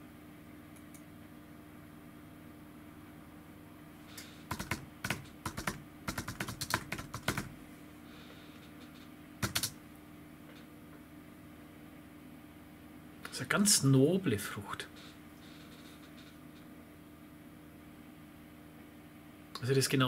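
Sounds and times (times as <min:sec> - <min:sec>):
keyboard key clicks: 0:09.4 - 0:09.8.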